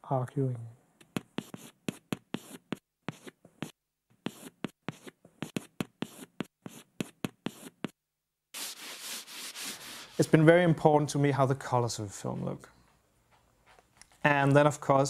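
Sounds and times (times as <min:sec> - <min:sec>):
chalk tapping and scratching: 0:01.0 - 0:08.0, 0:08.6 - 0:10.2
blackboard being wiped: 0:01.2 - 0:07.9, 0:08.6 - 0:10.4.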